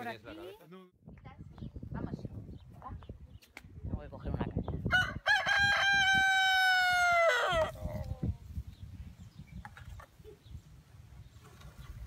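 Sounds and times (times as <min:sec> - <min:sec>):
rooster crowing: 0:04.9 - 0:07.8.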